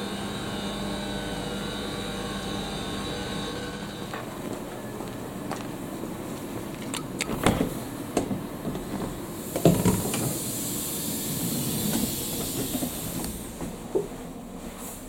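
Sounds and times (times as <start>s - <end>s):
train knocks and clunks: 3.9s - 14.6s.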